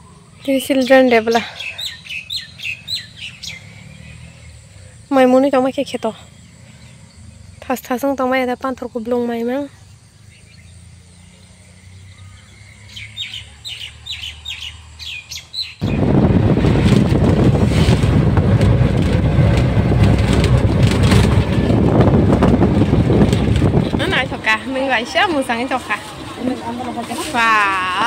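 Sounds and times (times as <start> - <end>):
birds chirping: 0.0 - 16.1
loud steady rushing noise: 15.8 - 28.0.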